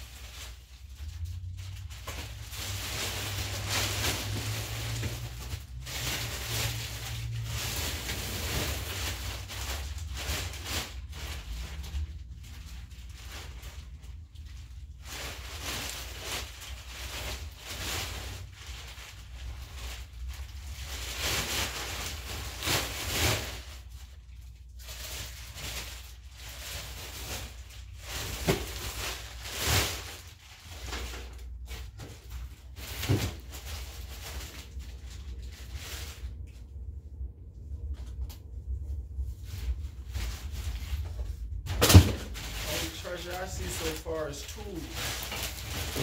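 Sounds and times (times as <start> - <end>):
plastic bags rustling: 0.0 - 37.2, 37.8 - 46.0
knocks and thumps of objects: 41.7 - 42.4.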